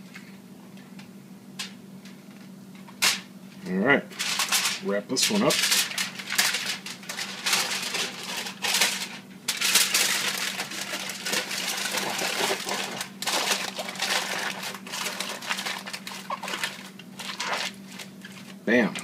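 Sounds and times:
aluminium foil crinkling: 4.1 - 19.0.

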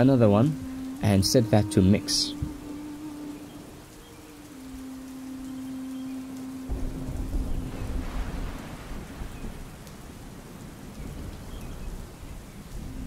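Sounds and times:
rain hissing: 0.0 - 13.0
rolling thunder: 6.6 - 13.0.

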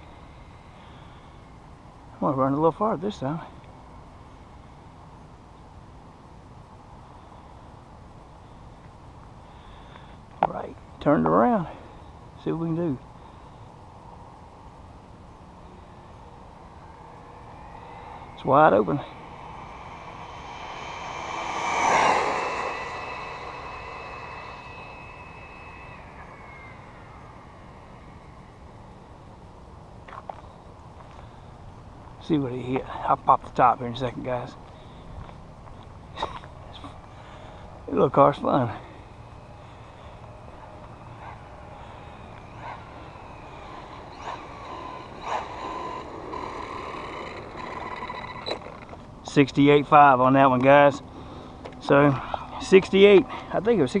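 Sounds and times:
rc car motor whining: 16.6 - 29.2, 38.4 - 49.1.

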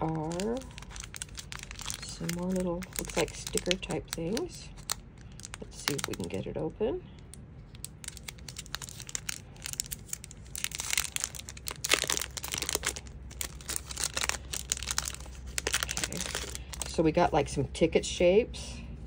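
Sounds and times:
plastic packet crinkling: 0.0 - 6.4, 7.2 - 17.0.

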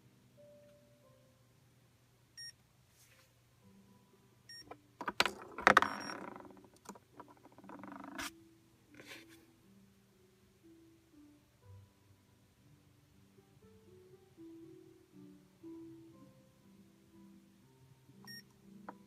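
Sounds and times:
plastic chess pieces clicking: 5.0 - 8.3.

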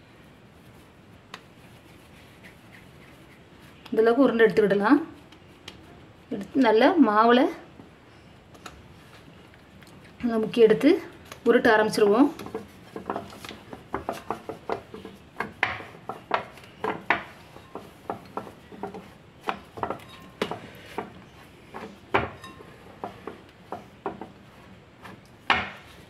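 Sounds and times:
rolling pin knocking on metal board: 12.4 - 24.4.

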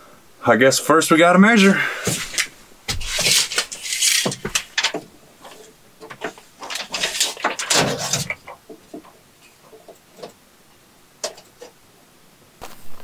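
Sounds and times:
tape measure rattling and clicking: 2.3 - 8.6.

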